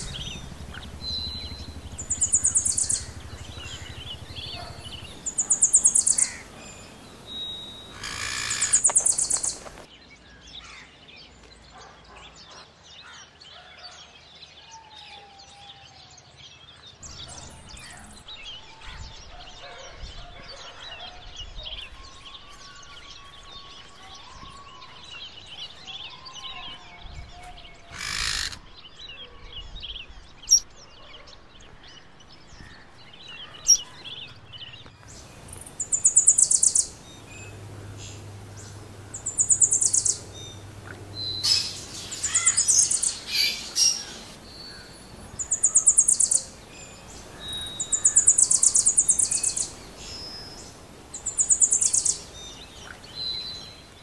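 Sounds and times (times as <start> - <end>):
loud high rapid trilling call: 0.0 - 9.9, 35.6 - 44.4
birds chirping: 0.0 - 14.5, 16.5 - 54.0.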